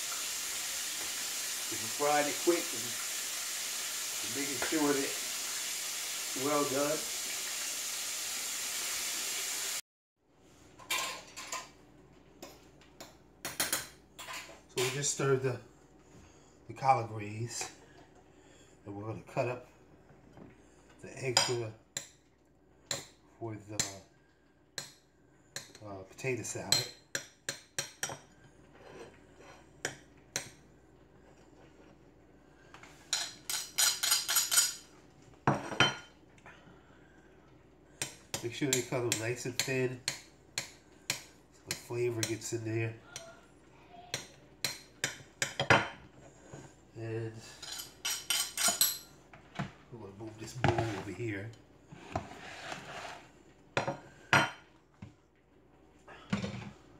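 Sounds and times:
fish sizzling in oil: 0:00.0 - 0:09.8
dishes and utensils clinking: 0:33.1 - 0:34.9, 0:47.5 - 0:49.2.

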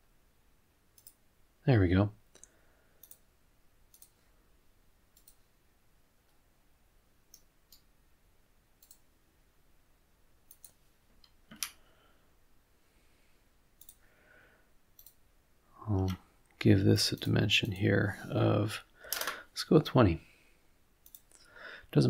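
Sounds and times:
faint computer mouse clicks: 0:01.0 - 0:01.2, 0:02.4 - 0:03.2, 0:03.9 - 0:04.2, 0:05.2 - 0:05.5, 0:08.8 - 0:09.0, 0:10.5 - 0:11.8, 0:13.8 - 0:14.0, 0:15.0 - 0:15.2, 0:21.0 - 0:21.4.

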